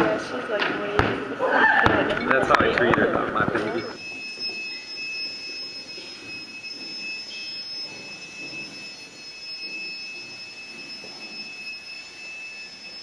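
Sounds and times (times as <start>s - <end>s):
murmur of crowd talking: 0.0s - 4.1s
high-pitched two-tone whine: 0.0s - 13.0s.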